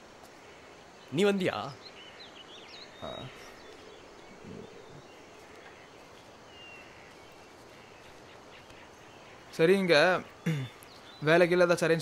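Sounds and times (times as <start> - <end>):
faint bird chirps: 0.0 - 12.0
woodland ambience: 0.0 - 12.0.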